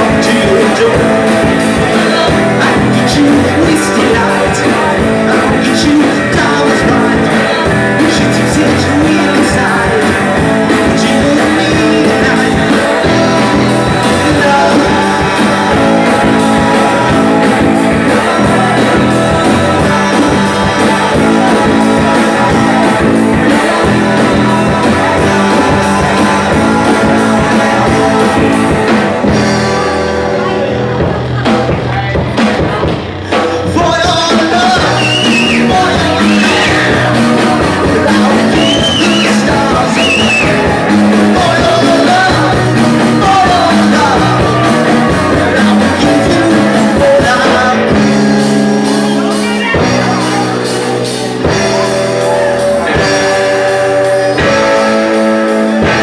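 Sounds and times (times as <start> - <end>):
drum kit: 0.0 - 56.0
electric guitar: 0.0 - 56.0
live rock band playing: 0.0 - 56.0
man singing: 0.0 - 56.0.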